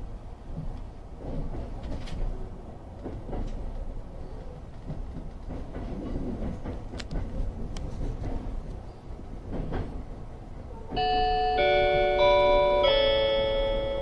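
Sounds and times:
train rumble inside carriage: 0.0s - 14.0s
wheels clicking on track: 0.5s - 8.8s.

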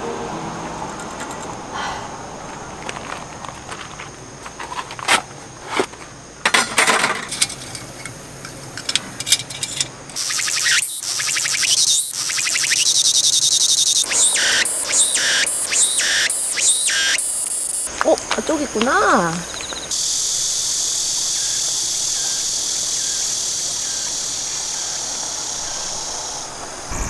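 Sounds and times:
cicada buzzing: 10.1s - 27.0s.

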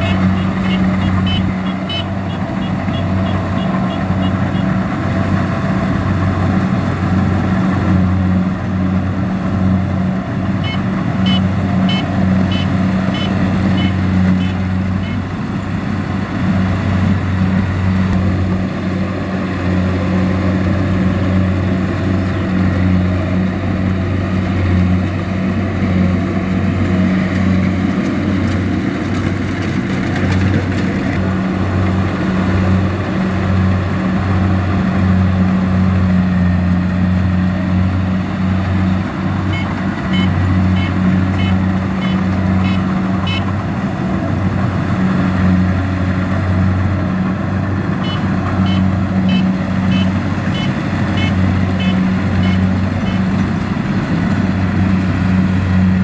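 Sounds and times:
harvester engine drone: 0.0s - 56.0s
short high beeps: 39.5s - 43.5s.

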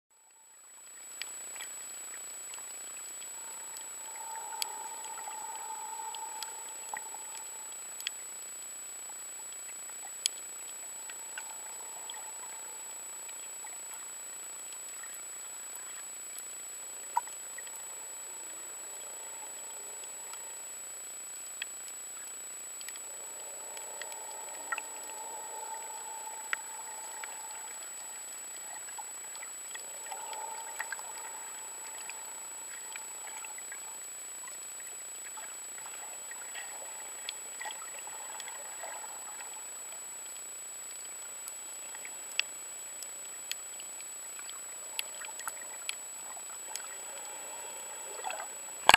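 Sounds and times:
thin high whine: 0.2s - 43.0s
muffled wash of water: 0.2s - 48.9s
steady underwater hiss: 0.2s - 48.9s
sharp ticks and clicks: 1.0s - 15.2s, 48.3s - 48.9s.

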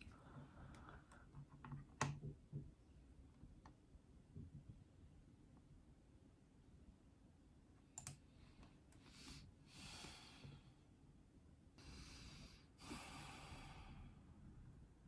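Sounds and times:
computer mouse click: 8.0s - 8.2s
woman exhaling slowly: 11.8s - 14.2s.

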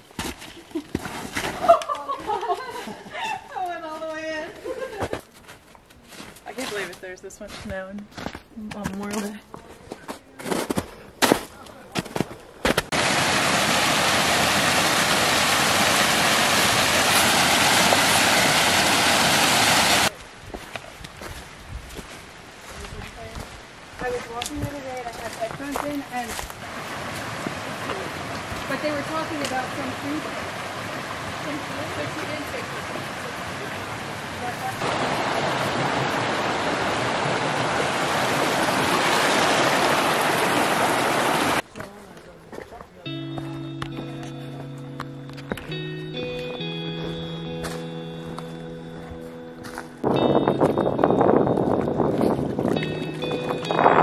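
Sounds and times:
stream rushing over rocks: 12.9s - 20.1s, 26.5s - 41.6s.

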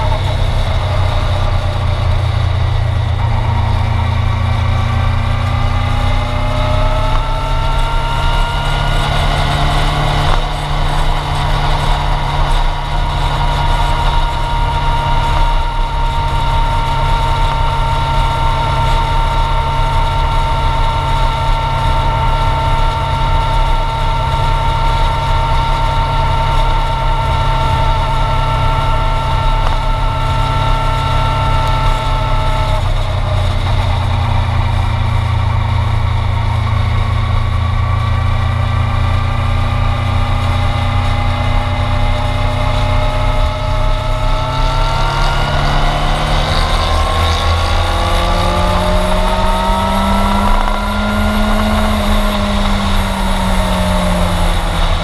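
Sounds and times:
motorcycle engine revving: 0.0s - 55.0s
wind rumble on microphone: 0.0s - 55.0s.

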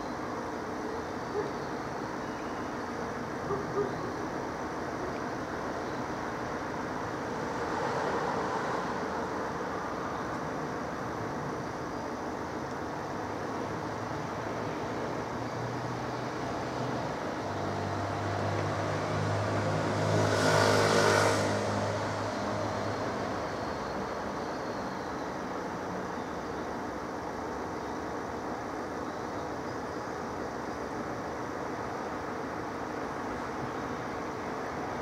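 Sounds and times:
vehicle passing by: 7.2s - 9.8s, 15.6s - 24.4s.

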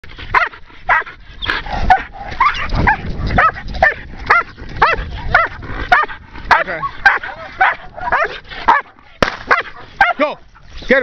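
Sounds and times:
dog barking and yelping: 0.3s - 10.6s.

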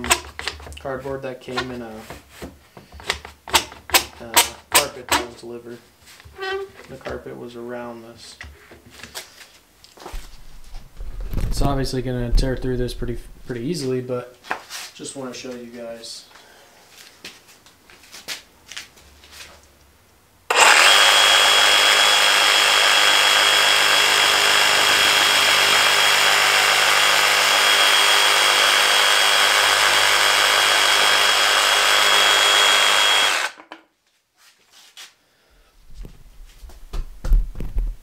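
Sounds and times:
low thumps: 10.1s - 13.6s
reciprocating saw cutting cardboard: 20.5s - 33.6s.

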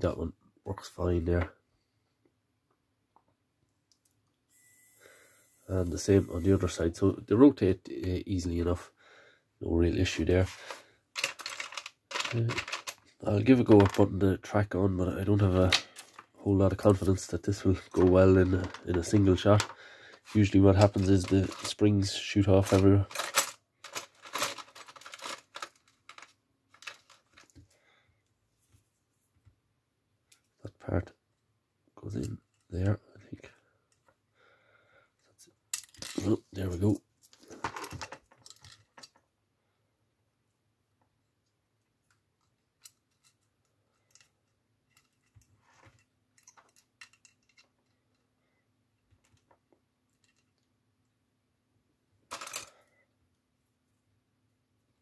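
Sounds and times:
plastic parts clicking and rattling: 10.5s - 14.2s, 15.4s - 27.8s, 35.7s - 36.4s, 37.2s - 39.3s, 42.0s - 48.2s, 49.0s - 50.7s, 52.3s - 52.9s.

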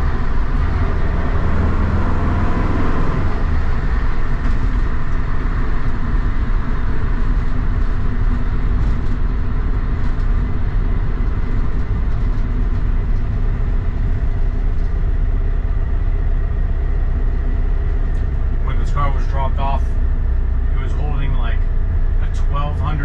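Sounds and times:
engine droning inside vehicle: 0.0s - 23.0s
road noise: 0.0s - 23.0s.

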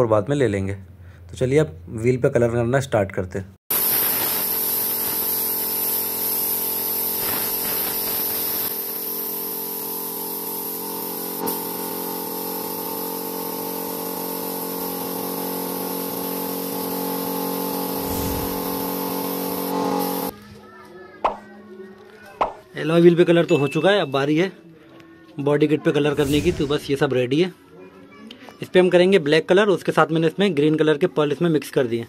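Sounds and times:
spray gun hissing: 3.7s - 20.3s
mechanical hum: 3.7s - 20.8s.

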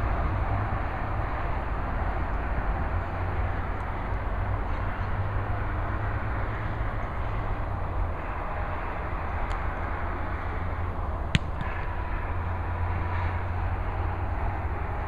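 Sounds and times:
highway traffic rumble: 0.0s - 15.0s
foot kicking a football: 11.3s - 11.7s.

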